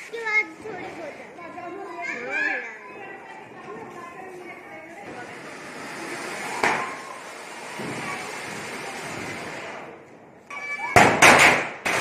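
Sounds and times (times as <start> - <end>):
fireworks fountain hissing: 5.1 - 10.0
firecracker bangs: 10.9 - 12.0.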